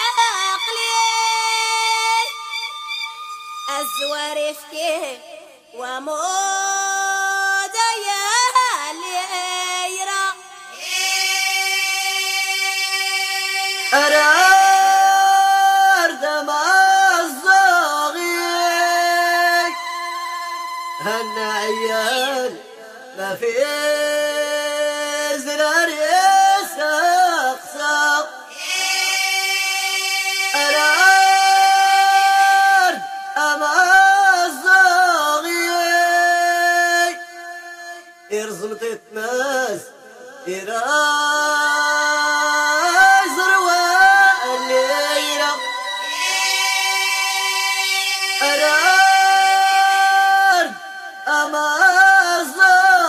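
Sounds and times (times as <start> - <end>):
voices singing long notes: 10.7 - 38.7, 41.4 - 53.0
women singing long held notes: 42.8 - 53.0.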